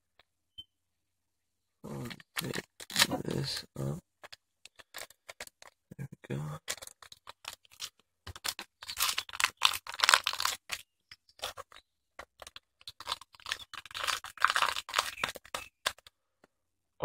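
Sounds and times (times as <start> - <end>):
adhesive tape ripping off roll: 6.7 - 10.8, 12.5 - 16.0.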